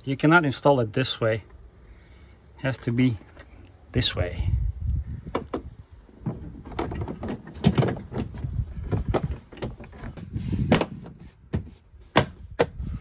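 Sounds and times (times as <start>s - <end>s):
handling and rubbing noise: 5.4s - 13.0s.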